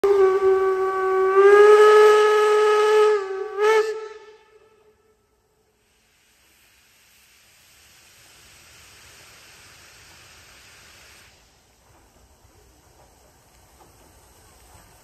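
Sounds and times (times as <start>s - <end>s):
faint steam hiss: 0.0s - 15.0s.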